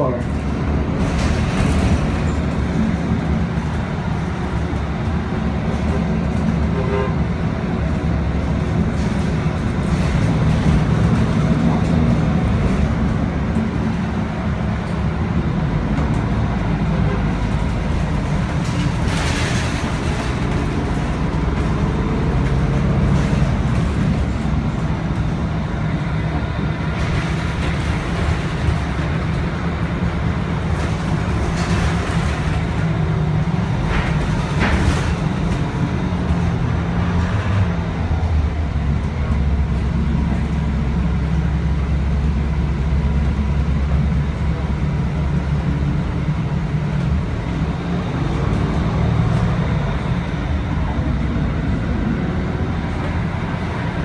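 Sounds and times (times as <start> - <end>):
bus diesel engine running: 0.0 - 54.0
low road rumble: 0.0 - 54.0.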